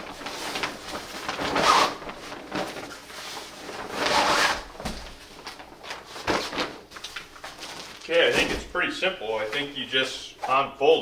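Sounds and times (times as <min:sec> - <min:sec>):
fabric bag rustling and scraping: 0:00.0 - 0:08.5.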